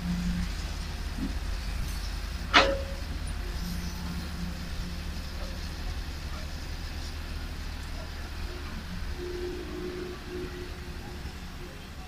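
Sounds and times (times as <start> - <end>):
dump truck diesel engine rumbling: 0.0 - 12.0
metal clank with ring: 1.9 - 3.1.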